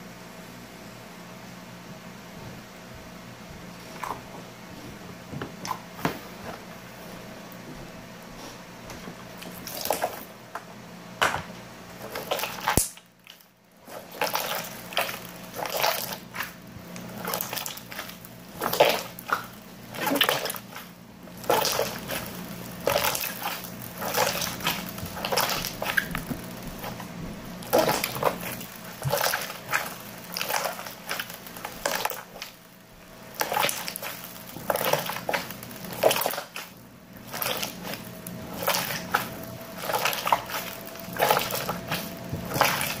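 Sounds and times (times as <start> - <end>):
slime squishing by hand: 9.3 - 10.4, 11.9 - 43.0.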